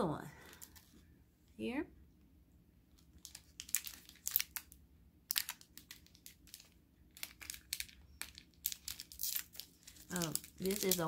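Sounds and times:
plastic wrapper crinkling: 0.4s - 1.0s, 2.9s - 11.0s.

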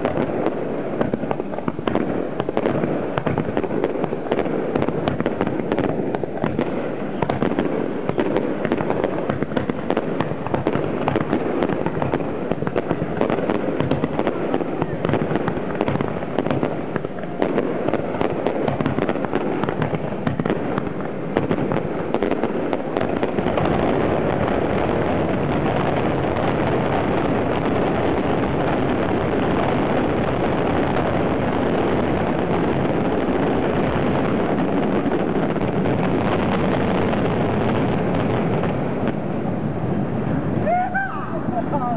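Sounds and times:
fireworks launching and bursting: 0.0s - 41.9s.

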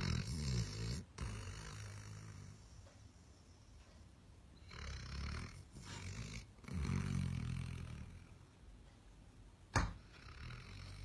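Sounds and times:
dog snoring: 0.0s - 3.0s, 4.6s - 8.5s, 10.0s - 11.0s.

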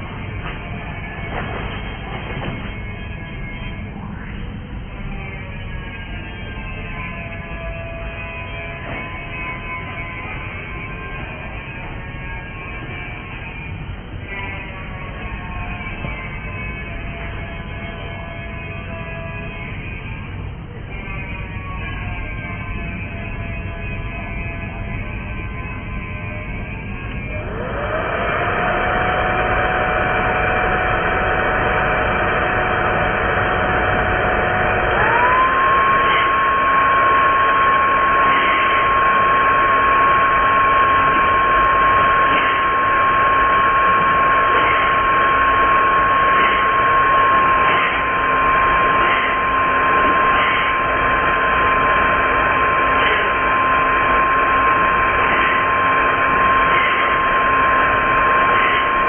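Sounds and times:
hair dryer running: 27.4s - 59.0s.

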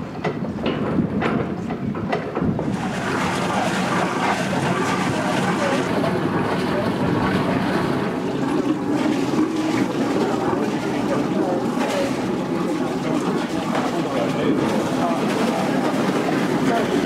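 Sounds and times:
wind on the microphone: 0.0s - 3.3s
boat engine running: 0.0s - 17.0s.

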